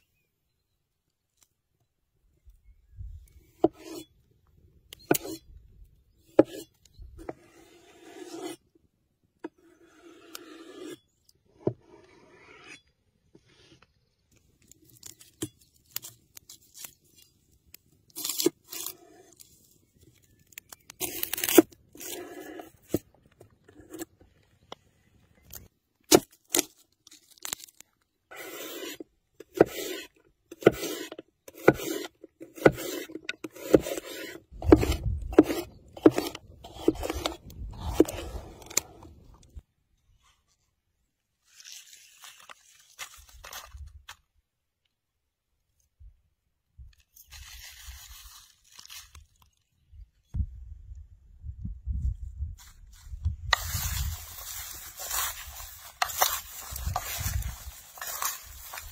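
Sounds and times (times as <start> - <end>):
knife scraping strokes: 3.6 - 4.1, 6.4 - 8.6, 9.5 - 11.2, 11.8 - 13.7, 28.3 - 39.3, 53.5 - 58.9.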